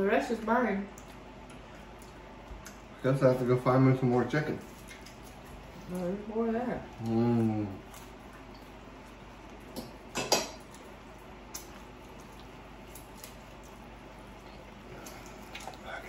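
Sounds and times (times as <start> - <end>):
utensils clinking against dishes: 9.8 - 10.6.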